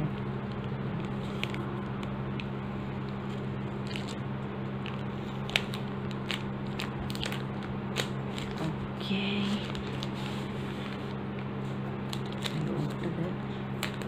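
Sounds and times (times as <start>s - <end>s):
low hum: 0.0s - 14.0s
plastic pouch crinkling: 1.0s - 4.2s, 4.8s - 8.7s, 12.1s - 13.1s, 13.8s - 14.0s.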